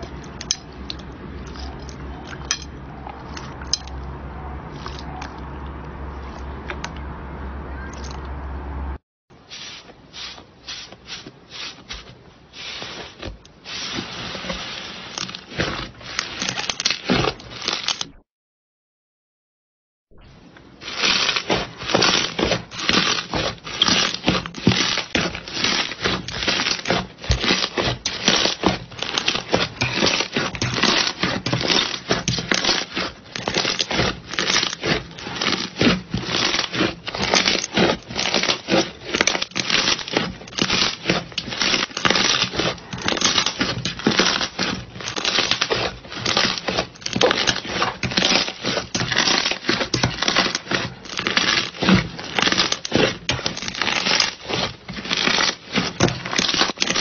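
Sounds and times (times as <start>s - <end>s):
slime crackling and popping: 12.7s - 18.2s, 20.7s - 57.0s.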